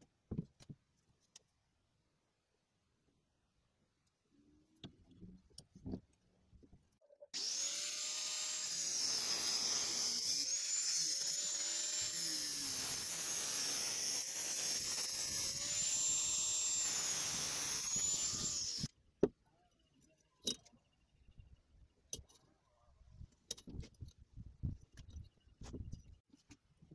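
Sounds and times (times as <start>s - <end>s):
angle grinder cutting metal: 7.3s - 18.9s.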